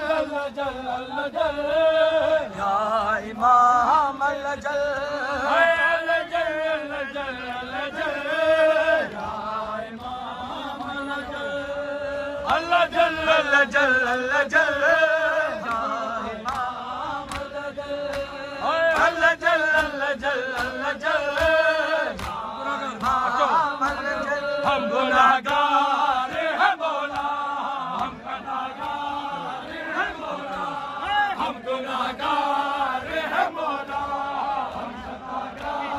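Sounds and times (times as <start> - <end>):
men chanting a sung lament: 0.0 - 35.9
hands slapping chests: 15.6 - 29.3.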